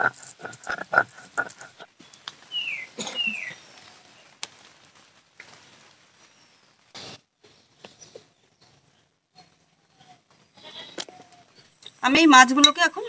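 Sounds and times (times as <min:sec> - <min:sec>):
stone grinding seed paste: 0:00.0 - 0:01.9
short falling bird calls: 0:02.5 - 0:04.0.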